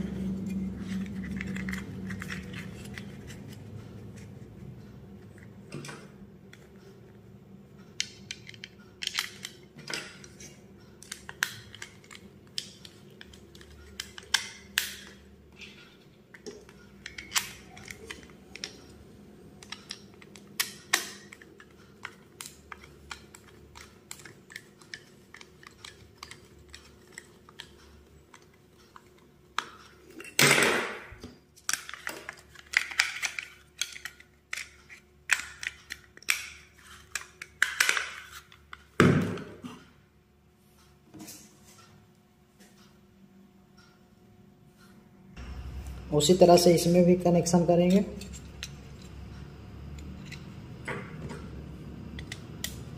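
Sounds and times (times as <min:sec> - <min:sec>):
plastic lamp holder clicks and rattles: 0:31.6 - 0:38.5.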